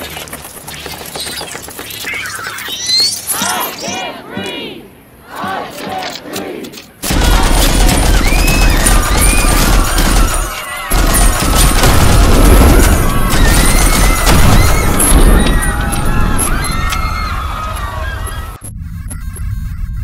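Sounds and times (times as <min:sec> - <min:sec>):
machine-gun fire bursts: 0:07.0 - 0:15.7.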